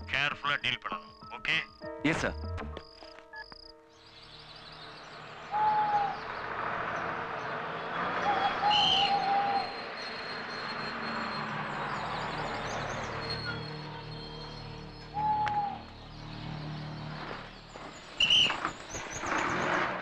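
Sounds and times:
bus engine and tyres: 2.4 - 20.0
bird whistled calls: 4.2 - 6.4, 8.2 - 19.8.

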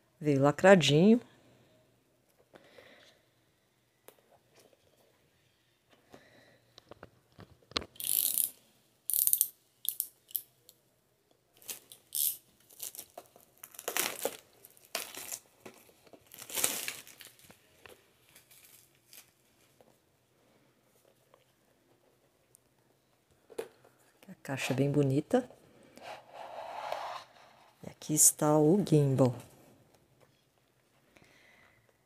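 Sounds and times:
plastic shrink-wrap tearing: 11.6 - 19.7.

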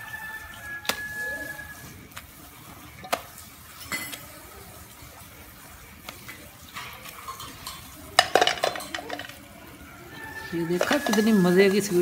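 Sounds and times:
frying pan shaken on pan stand: 7.2 - 9.4.

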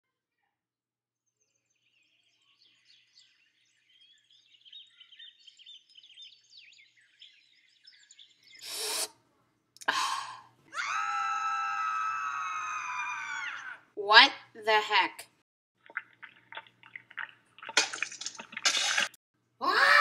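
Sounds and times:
birds chirping: 1.4 - 9.0.

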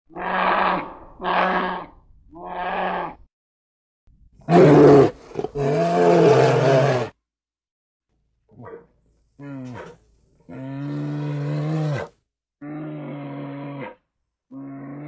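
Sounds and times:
bear roaring: 4.5 - 7.2, 9.4 - 15.0.

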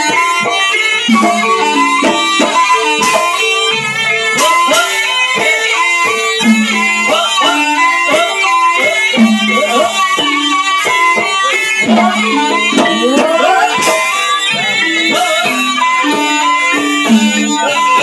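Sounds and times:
drum strokes: 0.0 - 18.0
wavering high melody: 0.0 - 18.0.

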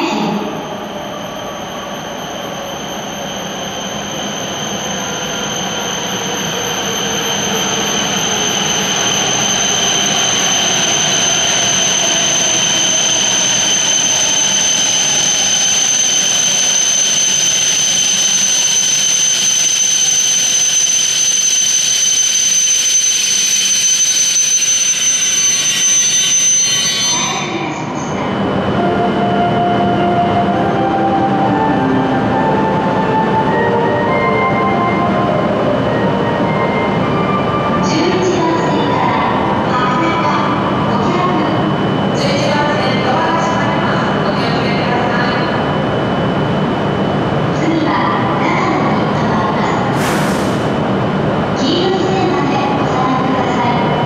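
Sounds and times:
high-pitched brake squeal: 0.1 - 29.2, 50.0 - 50.7
train motor whine: 0.4 - 38.0, 50.0 - 51.0
train running sound: 45.8 - 54.0.

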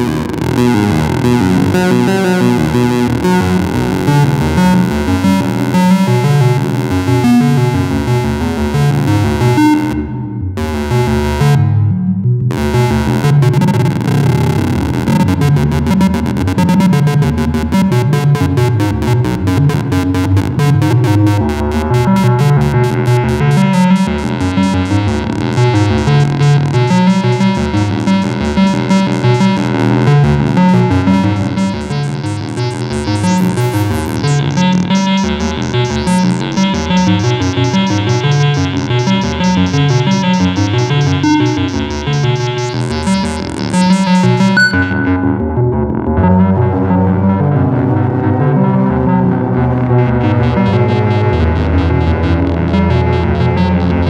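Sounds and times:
synth bass sequence: 0.0 - 54.0
high synth sweep: 44.6 - 45.6.

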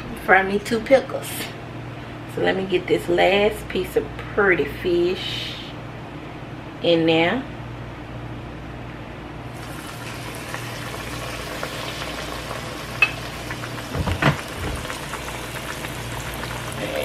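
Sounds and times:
fish frying in hot oil: 9.6 - 17.0.

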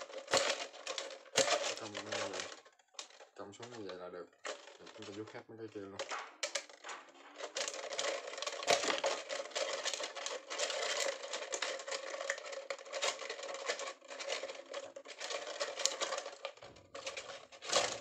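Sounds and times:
plastic strips crackling: 0.0 - 18.0
scissors cutting plastic: 0.0 - 18.0.

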